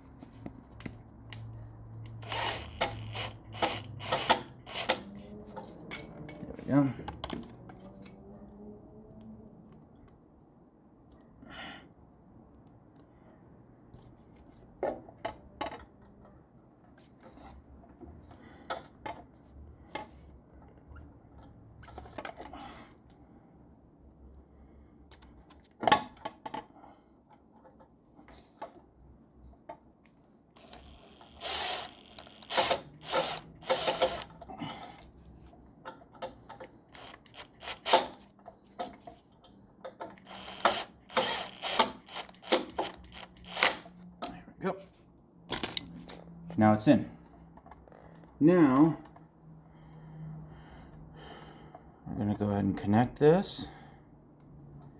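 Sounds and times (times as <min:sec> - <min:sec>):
cordless drill driving screw: 0:02.1 - 0:05.1, 0:30.6 - 0:34.4, 0:36.9 - 0:38.2, 0:40.2 - 0:43.8.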